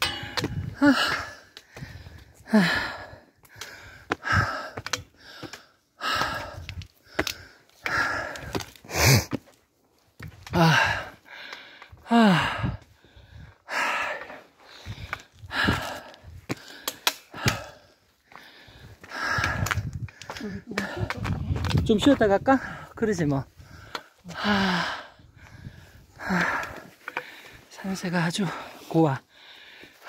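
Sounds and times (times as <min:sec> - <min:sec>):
man breathing hard: 0:00.0 - 0:09.5, 0:10.5 - 0:21.2, 0:22.6 - 0:27.7, 0:28.5 - 0:30.0
footsteps on rock: 0:03.4 - 0:11.9, 0:14.8 - 0:22.5.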